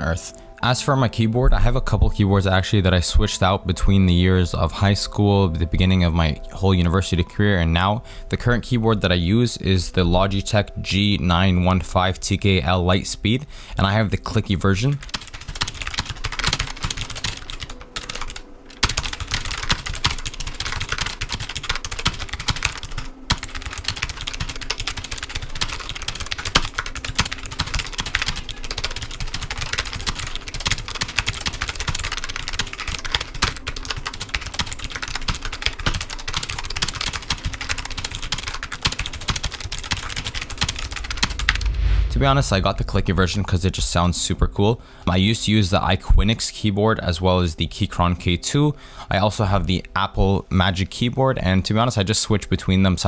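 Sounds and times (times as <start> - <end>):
fast typing on clicky keyboard: 14.8 - 41.6.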